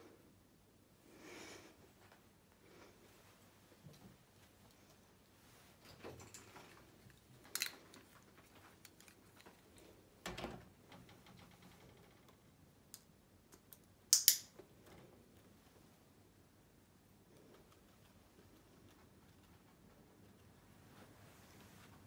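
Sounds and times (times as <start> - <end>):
guinea pig clicks and rustles: 4.2 - 10.1, 17.2 - 21.9.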